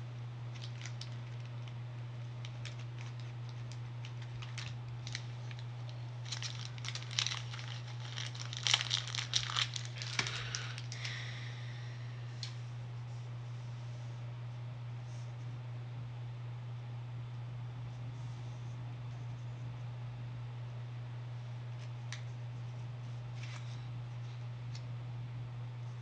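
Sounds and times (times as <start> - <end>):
steady low hum: 0.0 - 26.0
cards clicking and rustling: 0.5 - 1.8, 2.4 - 11.2.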